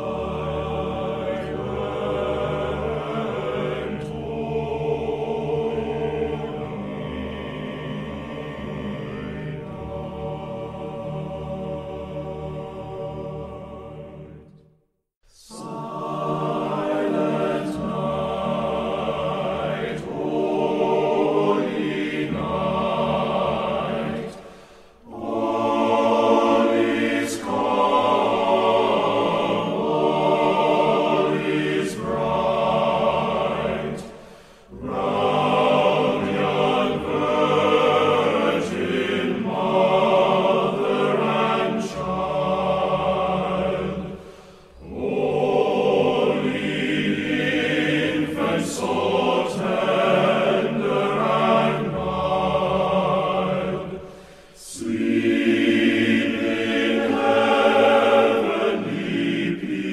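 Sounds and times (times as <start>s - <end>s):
choir singing: 0.0s - 59.9s.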